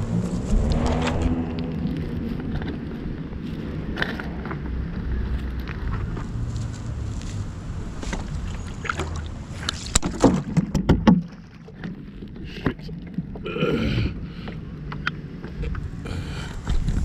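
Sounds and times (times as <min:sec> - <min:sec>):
water splashing against stone bank: 0:08.0 - 0:12.0
sharp knocks and thumps: 0:09.9 - 0:11.5.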